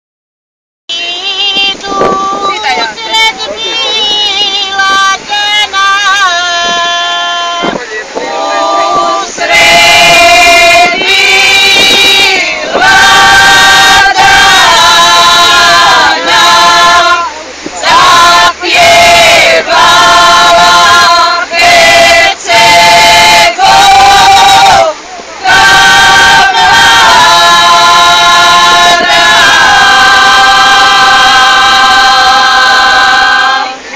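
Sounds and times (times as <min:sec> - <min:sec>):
group of people singing unaccompanied: 0:00.9 - 0:33.9.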